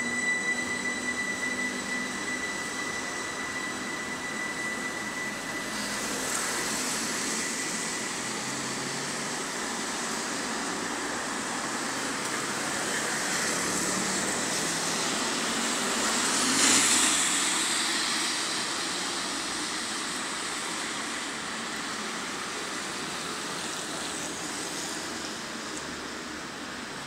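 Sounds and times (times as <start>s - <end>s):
street noise: 0.0s - 27.0s.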